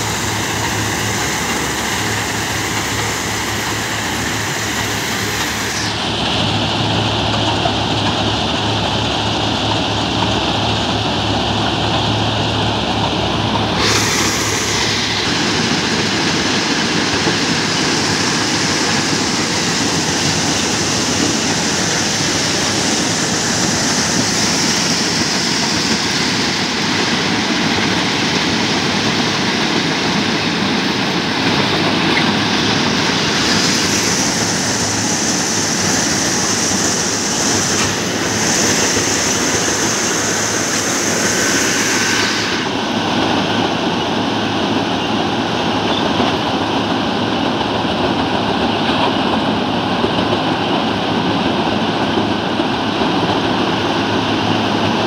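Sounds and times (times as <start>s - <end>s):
ballast cleaning machinery running: 0.0s - 55.0s.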